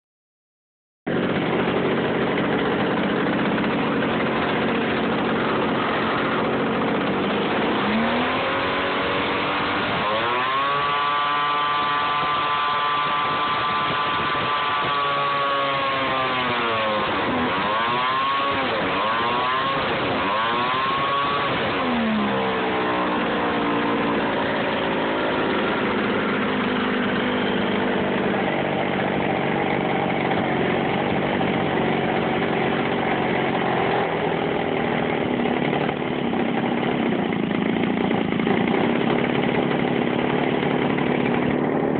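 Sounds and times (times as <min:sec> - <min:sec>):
model airplane engine running: 0:01.1 - 0:41.9.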